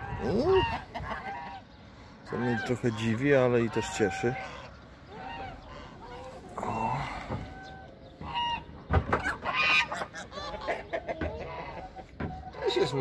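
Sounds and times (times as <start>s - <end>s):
hens clucking: 0.0s - 13.0s.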